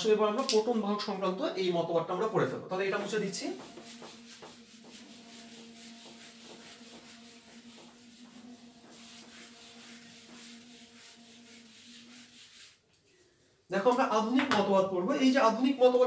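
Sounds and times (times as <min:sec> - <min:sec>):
whiteboard eraser rubbing: 0:02.8 - 0:13.2.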